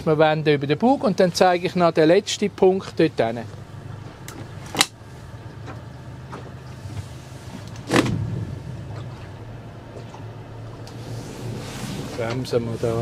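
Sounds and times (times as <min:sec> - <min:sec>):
motorboat engine humming: 0:00.0 - 0:13.0.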